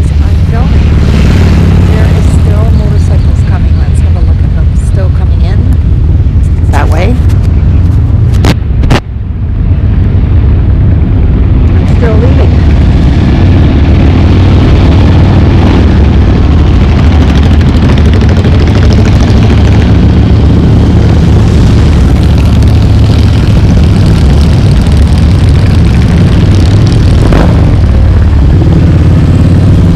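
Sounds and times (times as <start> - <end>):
motorcycles riding past: 0.0 - 5.6.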